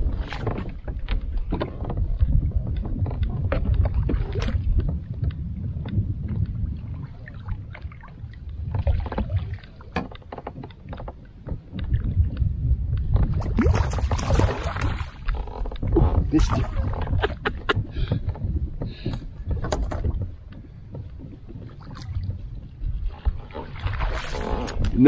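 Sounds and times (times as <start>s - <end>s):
low wind rumble: 0.0s - 25.0s
fish thrashing and splashing: 13.4s - 15.6s.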